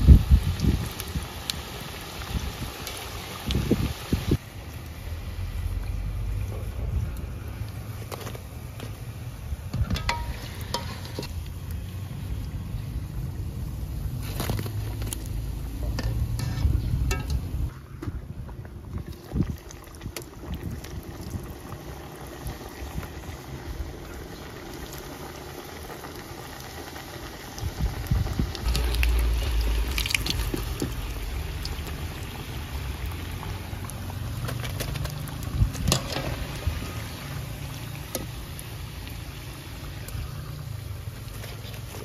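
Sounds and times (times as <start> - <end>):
oil sizzling and bubbling: 0.0 - 42.0.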